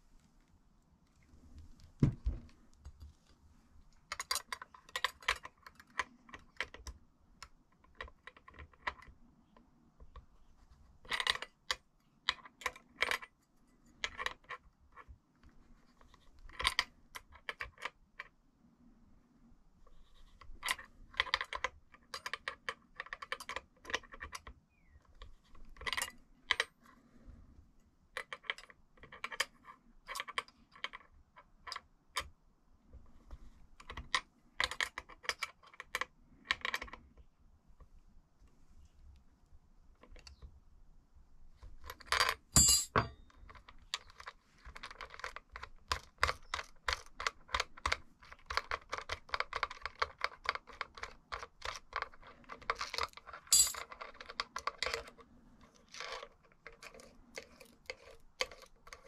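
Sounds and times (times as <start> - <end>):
clicks and rattles of metal parts: 4.1 - 6.9, 25.6 - 26.7, 41.7 - 59.0.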